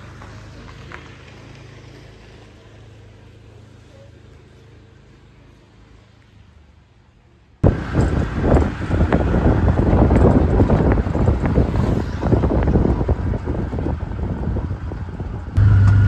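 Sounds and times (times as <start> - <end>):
vehicle road noise: 0.0 - 16.0
wind buffeting microphone: 7.6 - 16.0.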